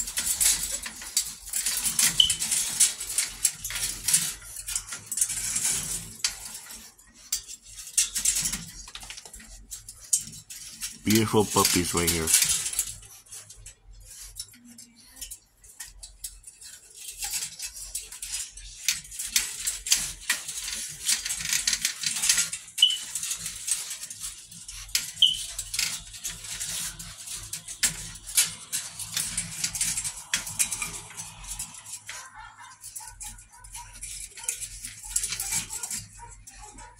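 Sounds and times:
claws clattering in wire crate: 0.0 - 11.0, 11.7 - 36.9
puppy squeaks: 22.8 - 23.1, 25.2 - 25.5.

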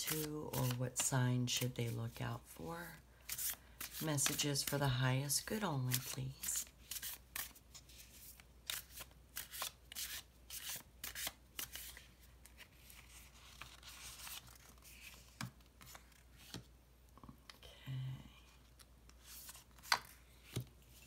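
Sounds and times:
cards being shuffled: 0.0 - 1.8, 3.2 - 4.8, 5.9 - 16.7, 18.8 - 21.0.

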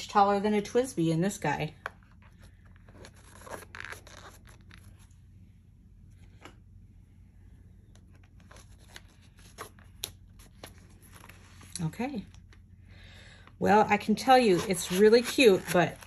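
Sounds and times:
leather and plastic rustling: 14.2 - 16.0.

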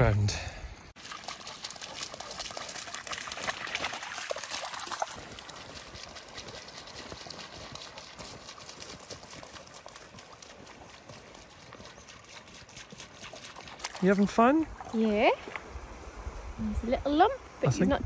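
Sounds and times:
footsteps of people walking: 5.0 - 13.2.

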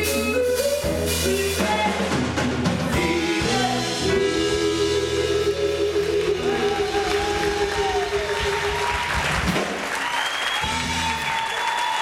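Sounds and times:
live band playing: 0.0 - 12.0
person singing: 1.2 - 2.3, 2.9 - 9.1.

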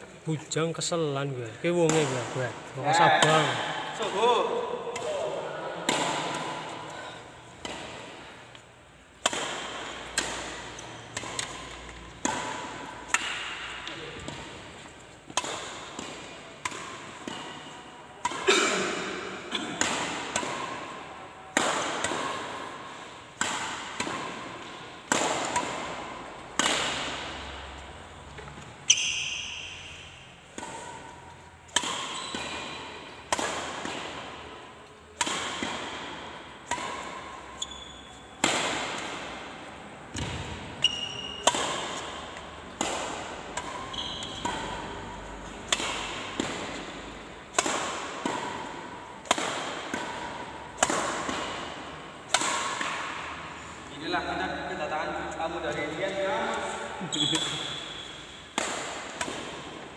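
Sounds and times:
rackets hitting shuttlecock: 1.7 - 59.9
shoes squeaking on court: 28.2 - 33.2, 36.7 - 39.1, 40.1 - 42.6, 43.4 - 45.7, 55.3 - 58.5.

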